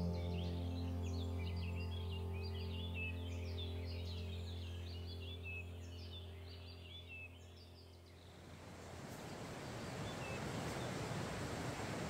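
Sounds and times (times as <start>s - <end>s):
background music with droning note: 0.0s - 8.4s
songbird chirps: 0.0s - 12.0s
mountain stream rushing: 8.4s - 12.0s.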